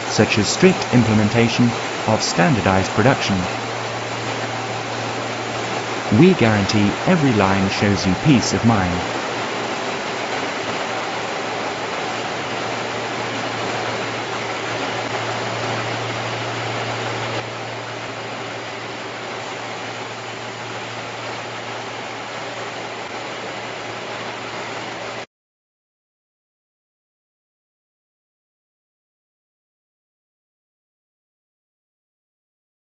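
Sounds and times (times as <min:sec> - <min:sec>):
low hum: 0:00.0 - 0:23.2.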